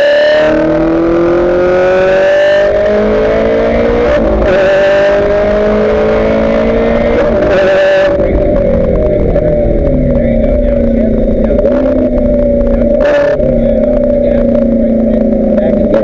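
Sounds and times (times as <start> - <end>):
gear upshift: 0.0 - 16.0
race car engine accelerating: 0.0 - 16.0.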